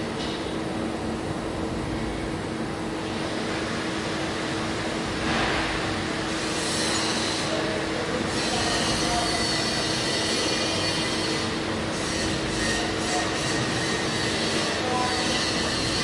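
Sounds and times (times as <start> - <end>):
low machinery hum: 0.0 - 16.0
high-pitched metallic squeals: 6.5 - 16.0.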